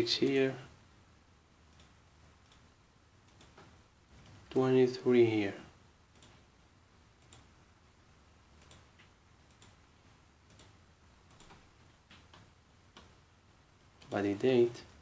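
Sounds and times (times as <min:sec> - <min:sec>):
faint mouse clicks: 0:01.7 - 0:04.4, 0:06.1 - 0:06.4, 0:07.2 - 0:07.5, 0:08.6 - 0:09.8, 0:10.5 - 0:13.2.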